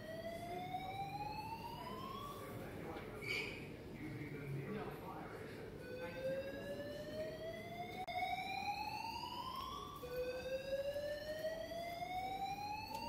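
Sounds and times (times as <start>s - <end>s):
whooping evacuation alarm: 0.0s - 3.0s, 5.5s - 13.0s.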